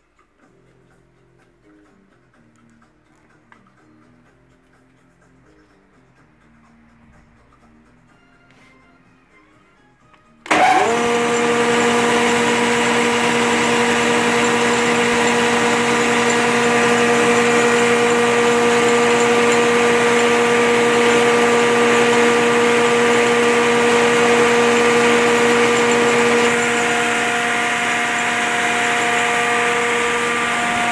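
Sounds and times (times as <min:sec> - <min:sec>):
thickness planer motor humming: 0:10.5 - 0:30.9.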